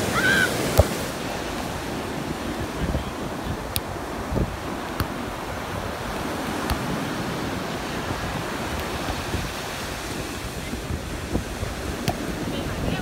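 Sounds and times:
wind on microphone: 0.0 - 13.0
football being kicked: 0.7 - 1.0, 6.6 - 7.4, 12.0 - 12.3.

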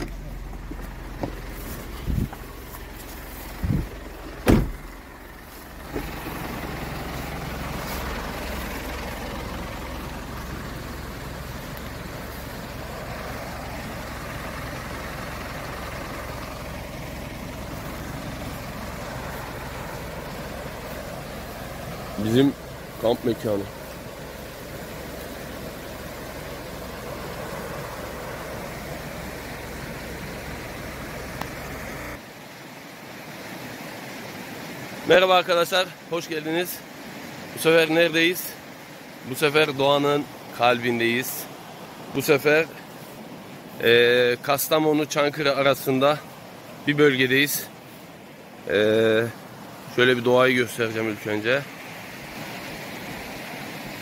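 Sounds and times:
pickup engine idling: 0.0 - 32.2
river rushing over rocks: 0.0 - 54.0
thumps: 4.4 - 4.8.

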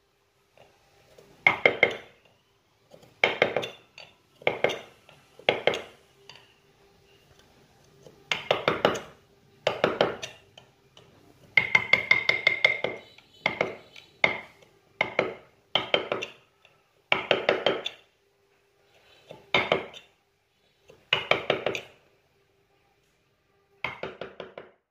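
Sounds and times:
mallet striking chisel: 1.4 - 2.2, 3.0 - 3.8, 4.4 - 5.9, 8.3 - 10.7, 11.6 - 16.5, 17.1 - 18.1, 19.3 - 20.1, 21.1 - 22.0, 23.8 - 24.8.

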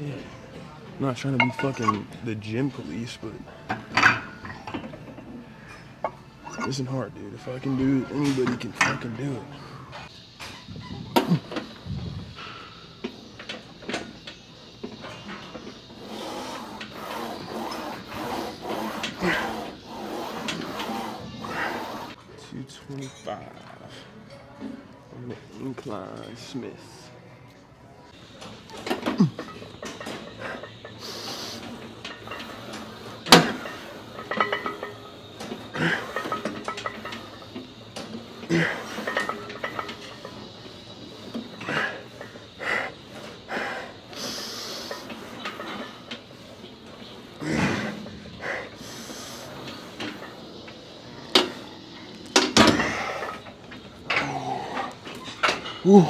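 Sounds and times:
weight bar and plates clanking: 1.4 - 2.1
weight machine bar clicking and sliding: 14.8 - 22.2, 28.7 - 56.0.

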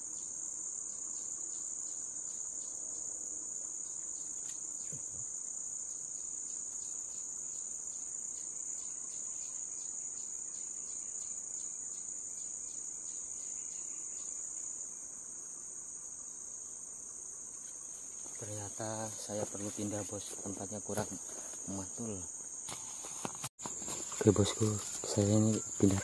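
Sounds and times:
insect ticking: 0.0 - 15.1, 17.0 - 26.0
high-pitched insect drone: 0.0 - 26.0.

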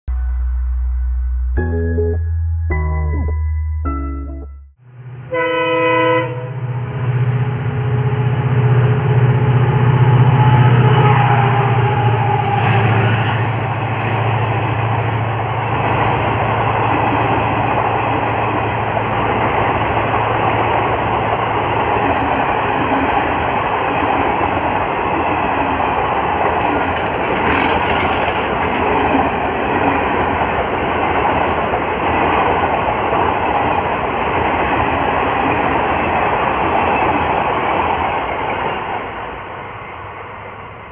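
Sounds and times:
diesel locomotive engine hum: 4.8 - 40.9
train coaches rushing past: 6.2 - 40.9
wheels clattering on rail: 14.0 - 39.2.

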